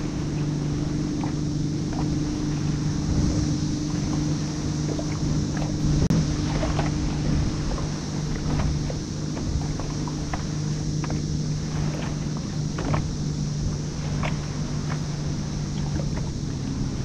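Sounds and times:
small waves lapping against kayak hull: 0.0s - 17.0s
steady low hum: 0.0s - 17.0s
wind on microphone: 0.0s - 17.0s.

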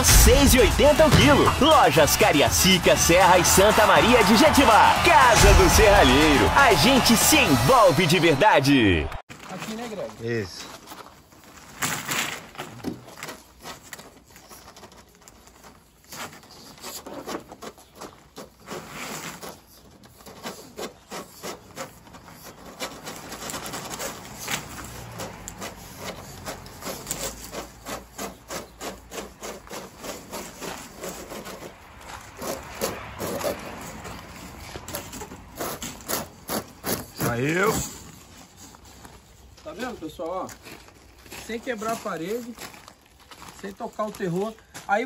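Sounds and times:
plastic conduit rasping against bricks: 10.6s - 44.8s.

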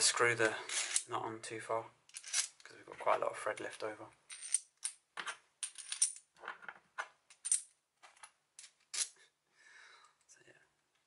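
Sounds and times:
metal washers clinking: 2.1s - 2.6s, 4.3s - 9.2s.

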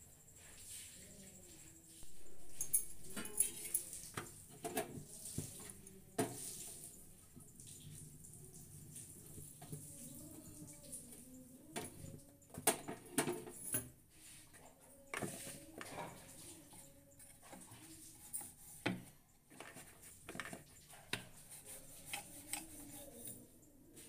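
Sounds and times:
steel utensils clinking: 2.0s - 4.1s.

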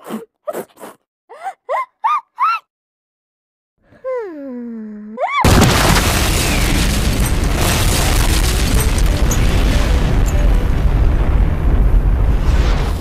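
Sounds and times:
loud explosion sound effect: 5.5s - 13.0s.

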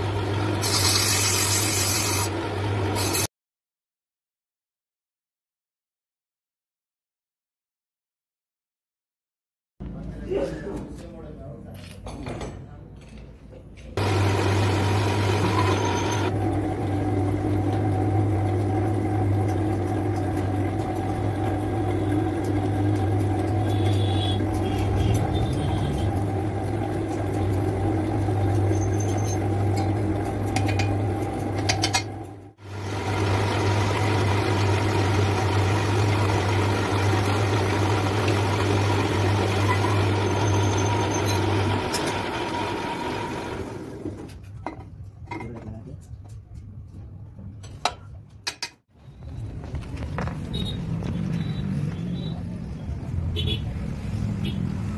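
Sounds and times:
machine motor humming: 14.0s - 28.8s, 29.4s - 44.0s.

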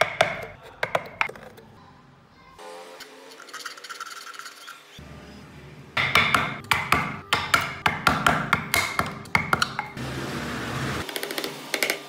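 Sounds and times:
chisel knocking into wood: 0.0s - 1.3s, 6.0s - 10.0s.

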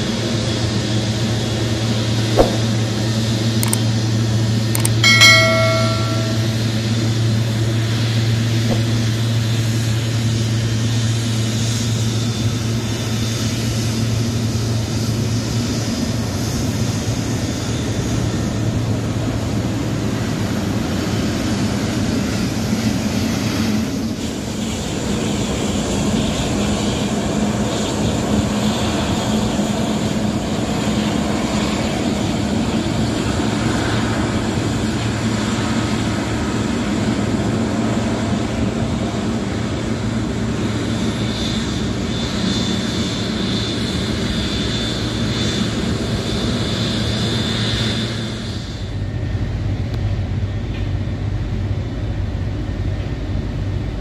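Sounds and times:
jet engines rushing: 0.1s - 50.4s
brief tone: 4.8s - 6.8s.

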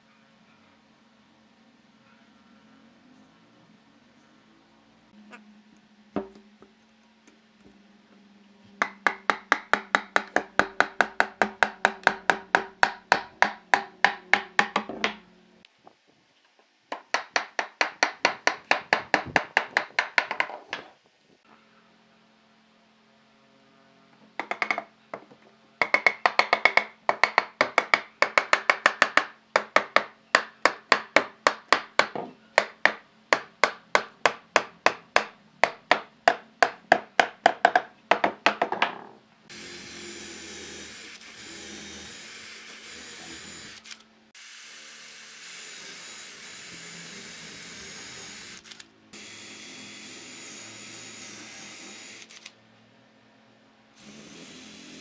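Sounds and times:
hammer striking wooden blocks: 8.8s - 15.2s, 16.9s - 20.9s, 25.8s - 39.0s
electric drill boring into wood: 39.5s - 52.5s, 54.0s - 55.0s.

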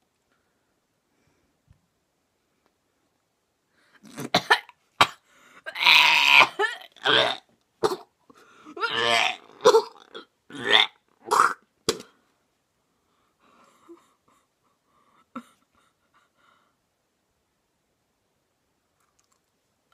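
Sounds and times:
boy gagging and retching: 4.0s - 8.1s, 8.7s - 12.1s.

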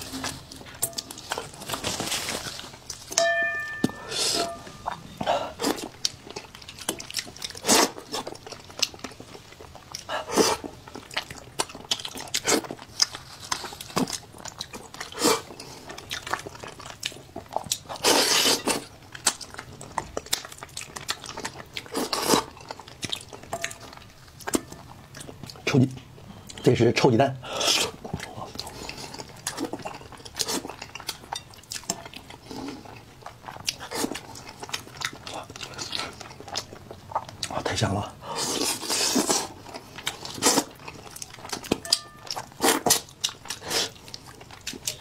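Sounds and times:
wet chewing: 0.0s - 26.7s, 27.4s - 45.0s
slurping and sucking: 38.3s - 39.6s.

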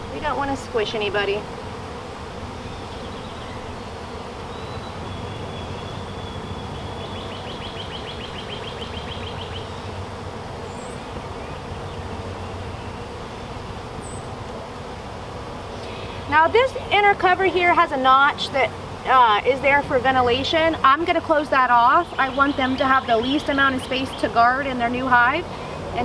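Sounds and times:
honeybees buzzing: 0.0s - 26.0s.

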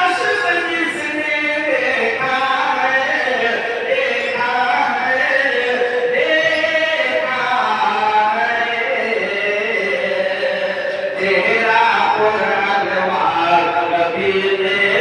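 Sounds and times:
man singing into microphone: 0.0s - 15.0s
men chanting: 0.0s - 15.0s.

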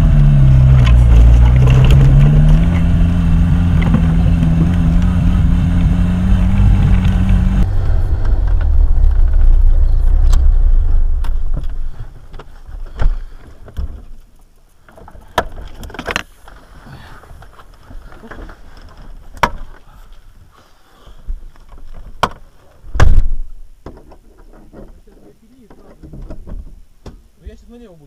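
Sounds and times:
off-road vehicle engine droning: 0.0s - 13.4s.

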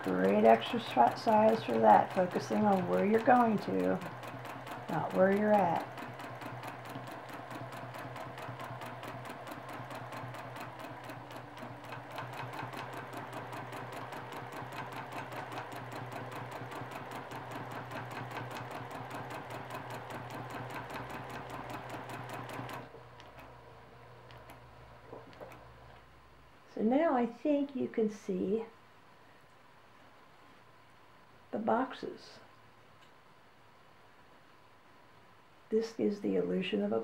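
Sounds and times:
sewing machine stitching: 0.0s - 23.6s.

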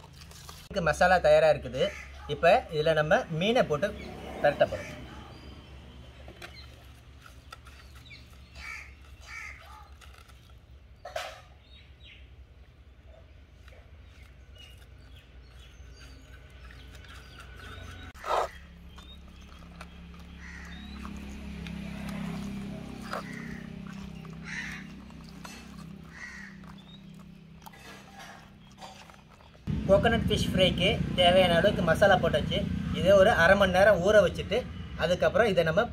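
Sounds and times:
hands mixing food in pot: 0.0s - 1.4s, 4.6s - 11.0s, 13.3s - 29.7s
small birds chirping: 0.3s - 35.9s
crows cawing: 1.8s - 2.4s, 8.6s - 10.2s, 18.2s - 18.6s, 20.2s - 28.5s.

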